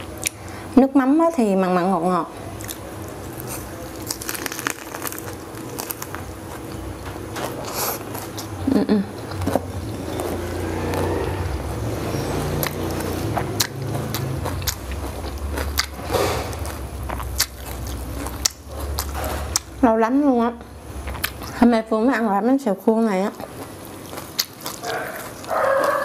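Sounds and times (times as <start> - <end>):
biting and chewing crispy food: 2.5 - 19.8, 21.0 - 21.7, 23.3 - 26.0.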